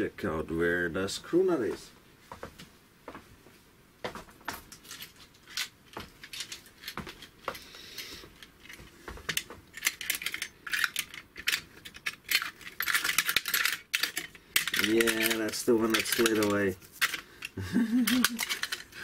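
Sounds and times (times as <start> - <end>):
metal parts clinking in tray: 4.7 - 7.3, 7.9 - 19.0.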